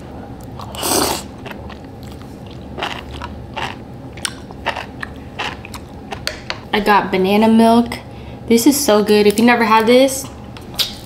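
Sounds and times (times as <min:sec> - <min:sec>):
chewing with mouth clicks: 0:00.4 - 0:06.4
person slurping noodles: 0:00.7 - 0:01.3.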